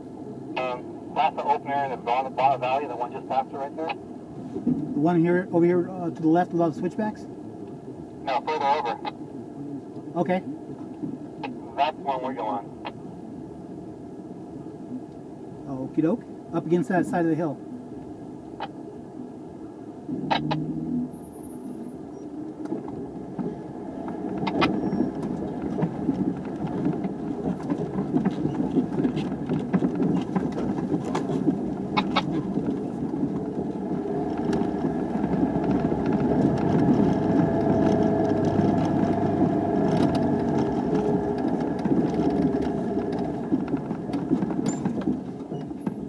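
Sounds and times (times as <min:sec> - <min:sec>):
vehicle engine and drivetrain: 0:00.0 - 0:46.0
knocks and rattles from bumps: 0:22.6 - 0:46.0.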